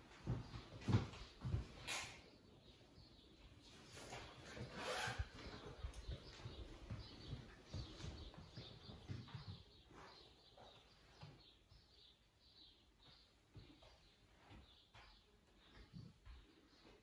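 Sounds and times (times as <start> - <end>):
faint bird chirping: 0.0 - 17.0.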